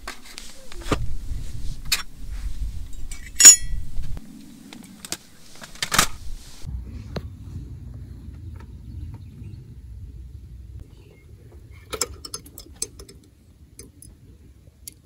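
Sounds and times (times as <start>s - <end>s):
sharp knocks and clinks: 3.2s - 3.8s.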